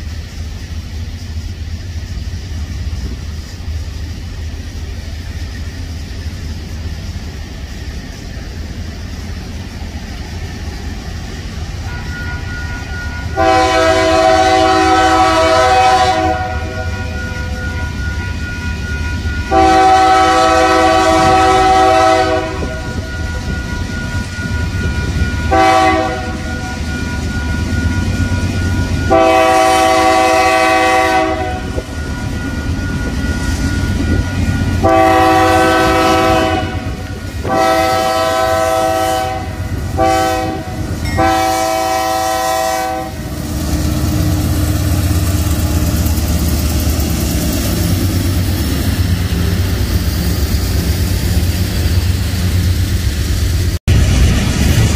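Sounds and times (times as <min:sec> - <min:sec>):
diesel engines and wheels rumbling: 0:00.0 - 0:54.9
locomotive air horn chord: 0:11.8 - 0:27.3, 0:28.8 - 0:32.1, 0:34.0 - 0:45.9.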